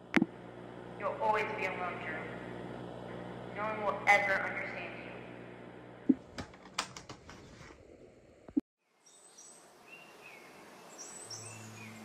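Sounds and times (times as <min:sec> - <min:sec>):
birds chirping: 0:09.1 - 0:12.0.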